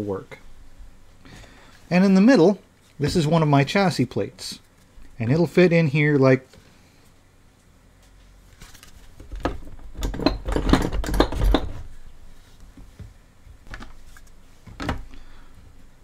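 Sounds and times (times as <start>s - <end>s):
plastic parts knocking and rattling: 9.1s - 11.9s, 14.7s - 15.1s.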